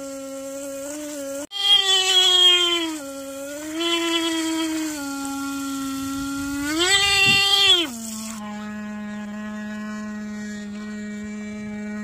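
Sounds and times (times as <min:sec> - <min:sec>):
water spraying: 0:01.6 - 0:08.4
electric horn underwater: 0:03.6 - 0:12.0.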